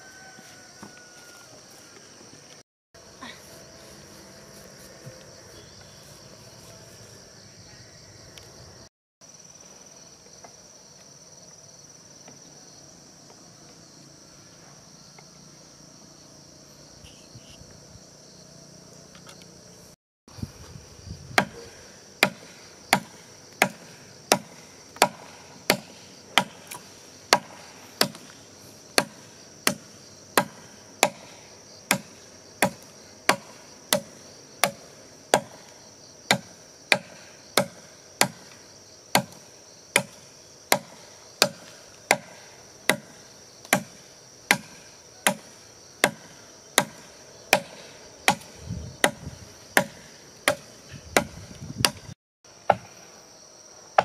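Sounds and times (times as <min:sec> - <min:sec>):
crickets droning: 0:00.0 - 0:54.0
blade chopping into wood: 0:21.4 - 0:28.4, 0:29.0 - 0:35.7, 0:36.3 - 0:39.4, 0:40.0 - 0:52.9.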